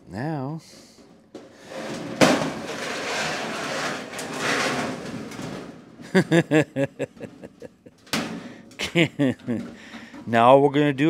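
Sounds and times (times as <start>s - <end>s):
metal-on-metal scraping: 0.7s - 6.0s.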